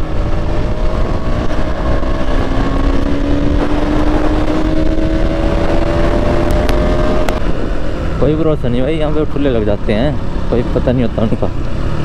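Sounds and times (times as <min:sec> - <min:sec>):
wind rumble on microphone: 0:00.0 - 0:09.3
motorcycle engine accelerating: 0:00.0 - 0:12.0.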